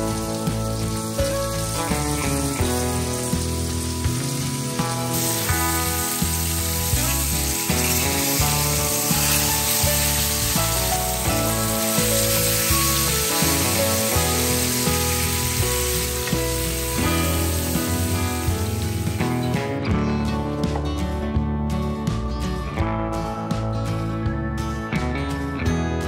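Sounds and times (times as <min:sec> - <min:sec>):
food sizzling in hot fat: 0:00.0 - 0:19.7
background music with beat: 0:00.0 - 0:26.0.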